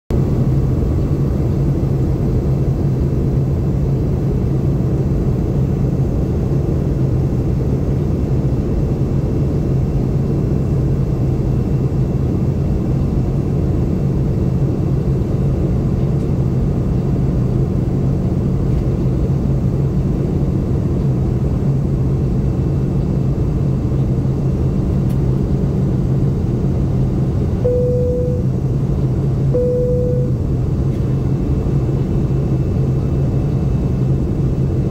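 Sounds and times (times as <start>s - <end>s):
jet engines droning in cabin: 0.1s - 34.9s
short steady tone: 27.6s - 28.6s, 29.5s - 30.4s.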